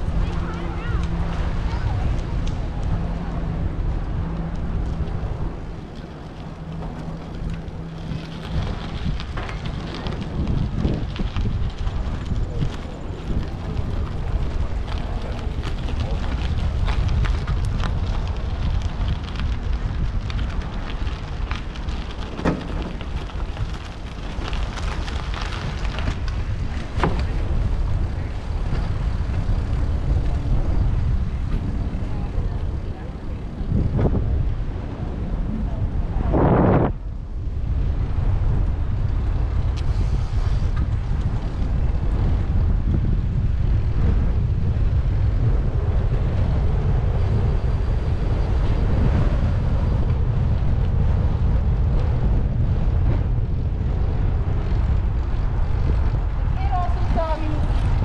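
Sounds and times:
crackles and knocks: 0.0 - 34.9
steady low hum: 0.0 - 58.0
wind rumbling on microphone: 0.0 - 58.0.

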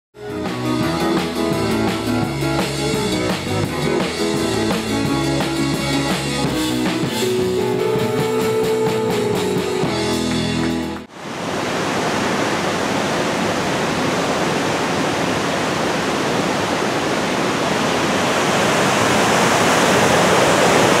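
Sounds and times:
rock music with drums and guitar: 0.2 - 11.1.

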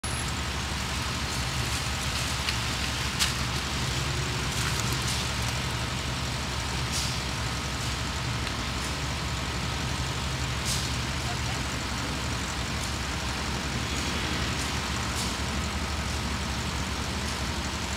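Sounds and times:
passing vehicles rumble: 0.0 - 17.9.

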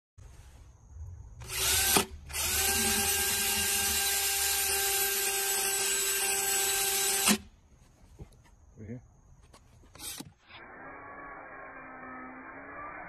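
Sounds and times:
cordless drill whining: 1.4 - 7.5, 9.9 - 13.0.

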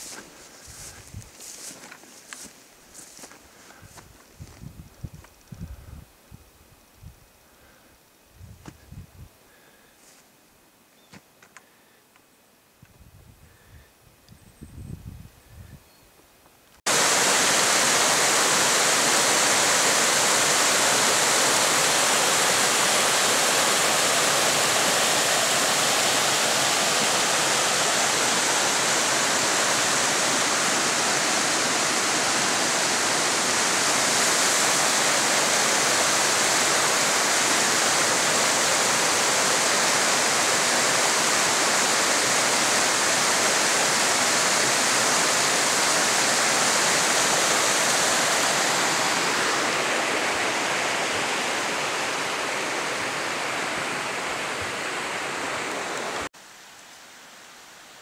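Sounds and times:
creek water rushing: 0.0 - 3.3, 16.9 - 58.0.

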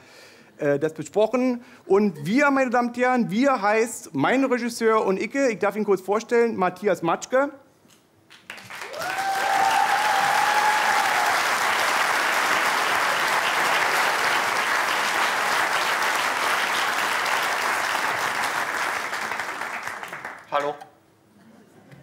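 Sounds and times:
audience applauding: 8.3 - 20.8.

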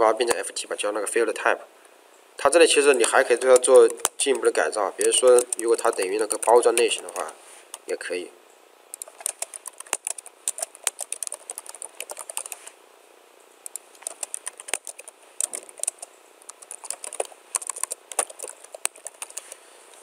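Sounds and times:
computer keyboard typing: 2.7 - 7.9, 8.9 - 12.6, 13.6 - 19.6.

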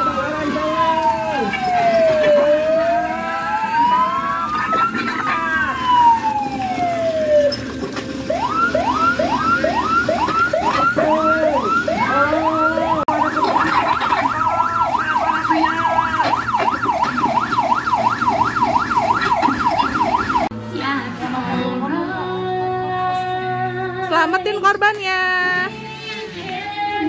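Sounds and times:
electronic siren wailing and yelping: 0.0 - 20.5.

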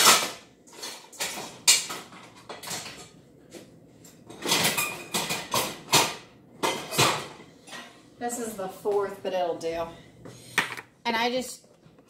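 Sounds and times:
kitchen items clunking: 0.0 - 3.2, 4.1 - 8.6.

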